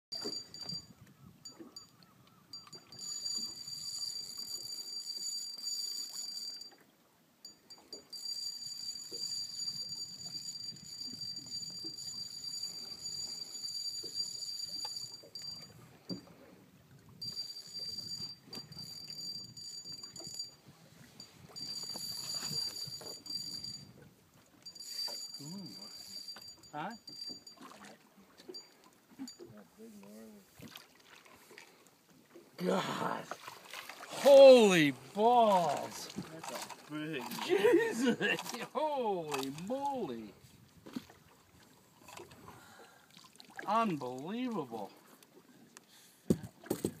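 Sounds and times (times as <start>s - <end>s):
fishing reel drag buzzing: 24.8s - 27.4s.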